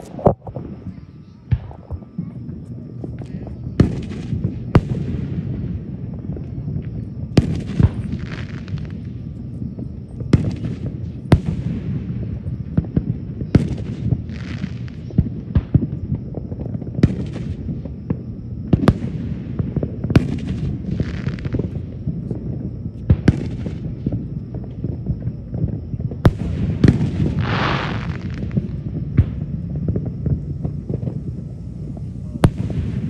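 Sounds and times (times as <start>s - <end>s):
fireworks bangs: 0.0s - 33.0s
low rumble: 23.7s - 33.0s
fireworks fizzing: 26.2s - 33.0s.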